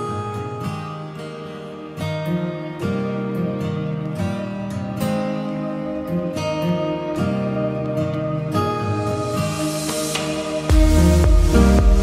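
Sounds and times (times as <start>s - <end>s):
plucked acoustic guitar music: 0.0s - 12.0s.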